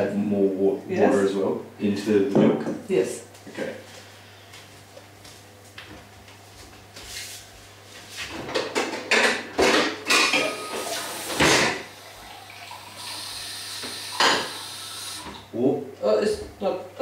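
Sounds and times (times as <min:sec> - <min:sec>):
pots and dishes clattering: 0:08.4 - 0:10.6, 0:14.2 - 0:14.6.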